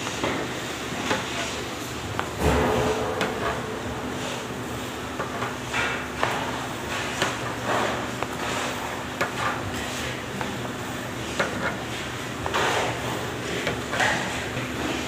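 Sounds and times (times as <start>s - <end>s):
steady low hum: 2.0s - 8.4s.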